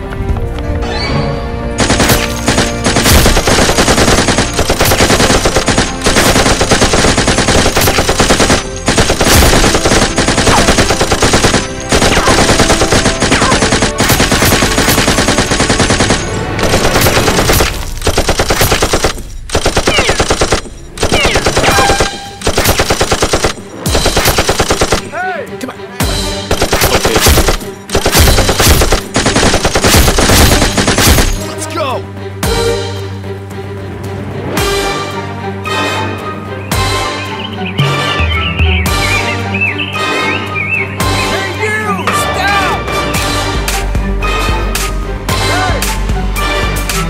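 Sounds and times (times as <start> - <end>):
rapid automatic gunfire: 1.8 - 25.1, 26.5 - 31.4.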